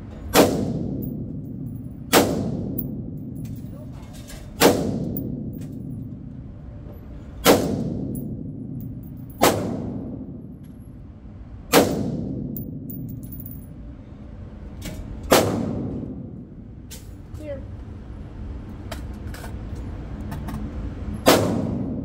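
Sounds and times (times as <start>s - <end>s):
rifle shots echoing indoors: 0.3s - 3.7s, 4.6s - 6.0s, 7.4s - 10.5s, 11.7s - 13.0s, 15.3s - 16.3s.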